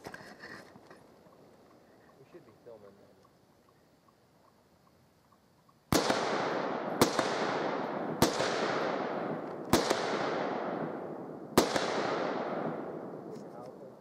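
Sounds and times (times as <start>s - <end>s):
rifle shots echoing: 5.9s - 13.4s.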